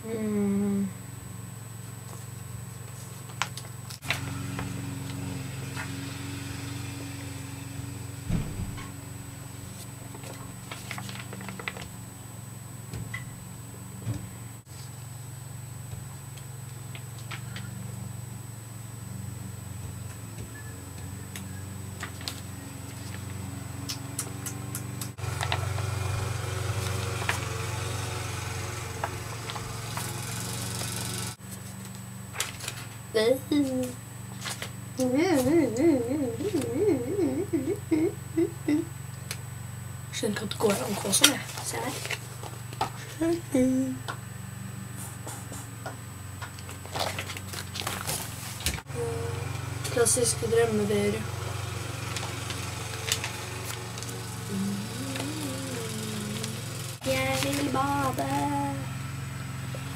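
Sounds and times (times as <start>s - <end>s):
low background hum: 0.0s - 59.9s
dull bump: 8.2s - 9.3s
magazine pages rustling: 9.7s - 11.9s, 40.7s - 43.2s, 46.7s - 48.6s, 57.2s - 58.4s.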